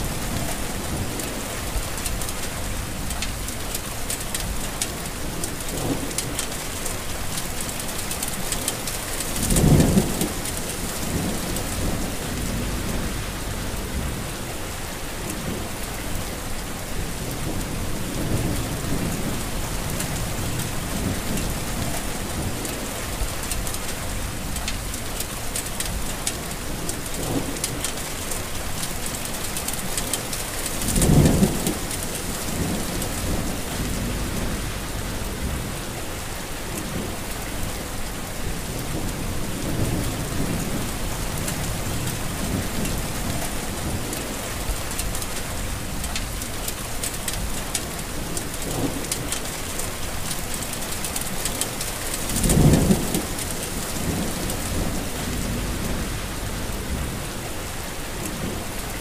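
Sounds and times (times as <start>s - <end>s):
heavy rain falling: 0.0s - 59.0s
low rumbles: 11.0s - 14.5s, 32.4s - 36.2s, 52.4s - 57.5s.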